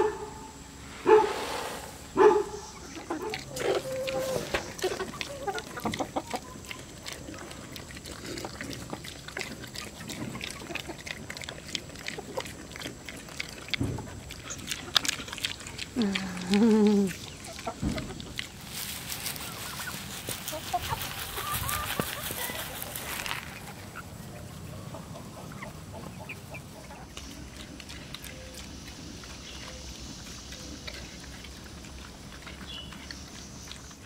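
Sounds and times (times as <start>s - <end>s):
chickens clucking: 0.0s - 34.0s
grain poured onto grass: 0.8s - 2.1s, 18.6s - 23.6s
drawn-out animal call: 2.2s - 7.6s
pigs crunching grain: 2.2s - 34.0s.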